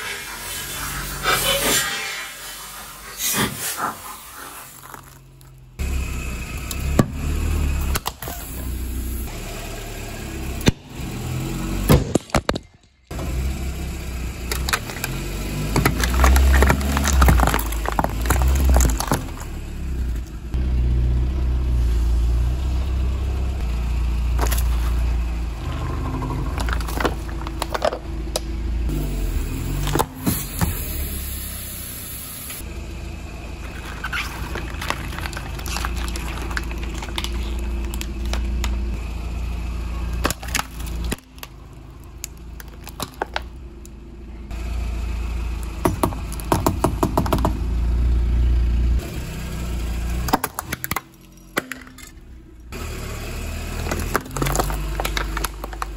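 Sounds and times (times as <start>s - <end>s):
car tyre crushing objects: 3.2s - 5.9s, 11.7s - 13.4s, 14.3s - 20.6s, 24.2s - 31.2s, 33.2s - 44.6s, 45.4s - 47.8s, 50.0s - 55.9s
low engine rumble: 3.8s - 11.9s, 12.6s - 55.9s
jelly squelching: 33.6s - 38.7s
plastic and aluminium crackling: 33.7s - 38.8s, 53.9s - 55.9s
plastic sticks cracking: 54.0s - 55.9s.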